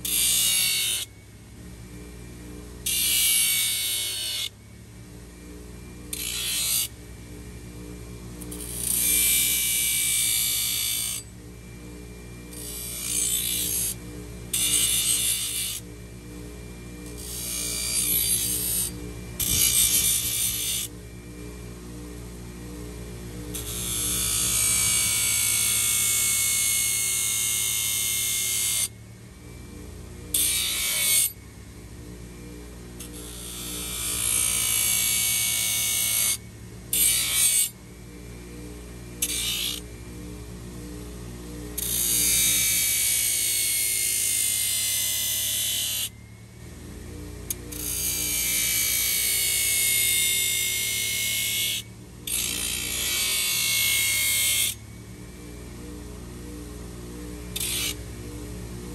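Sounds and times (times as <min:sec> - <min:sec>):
metal grinding on a belt: 0:00.0 - 0:01.2, 0:02.8 - 0:04.6, 0:06.0 - 0:07.0, 0:08.4 - 0:16.0, 0:16.7 - 0:22.1, 0:23.5 - 0:29.6, 0:30.2 - 0:31.4, 0:33.0 - 0:37.8, 0:39.1 - 0:40.0, 0:41.8 - 0:46.3, 0:47.4 - 0:55.9, 0:57.4 - 0:58.9
grinder motor hum: 0:00.0 - 0:58.9.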